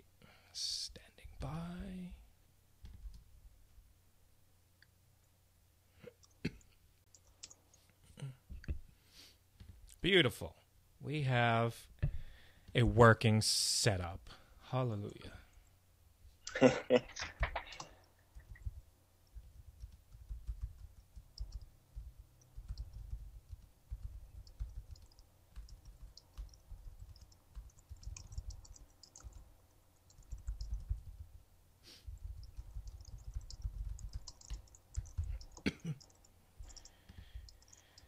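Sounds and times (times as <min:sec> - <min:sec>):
typing on keyboard: 0:17.4 - 0:31.3, 0:32.1 - 0:38.0
mouse clicking: 0:19.3 - 0:31.2, 0:32.1 - 0:38.0.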